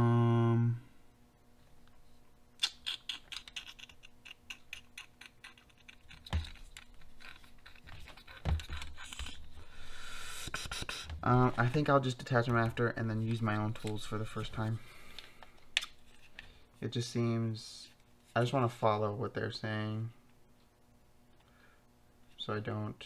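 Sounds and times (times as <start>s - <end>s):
person humming: 0.0s - 1.0s, 10.3s - 11.2s
plastic parts clicking and rattling: 3.3s - 9.4s.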